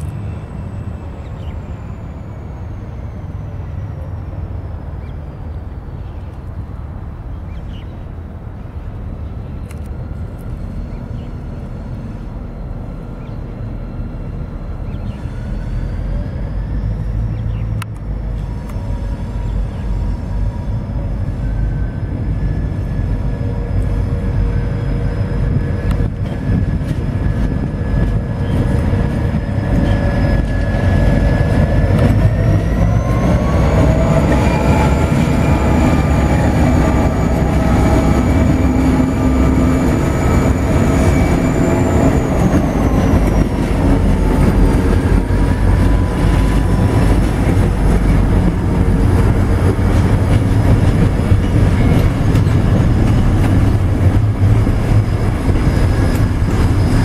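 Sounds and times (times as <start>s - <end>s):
diesel locomotive engines rumbling: 0.0s - 57.0s
freight wagons rolling past: 22.0s - 57.0s.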